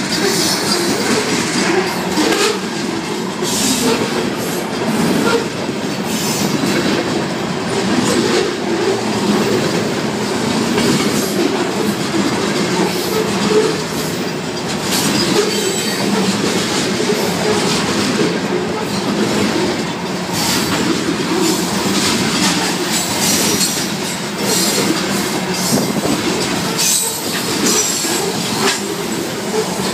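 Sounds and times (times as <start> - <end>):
freight train rumbling past: 0.0 - 29.9
wheels clacking over rail joints: 0.0 - 29.9.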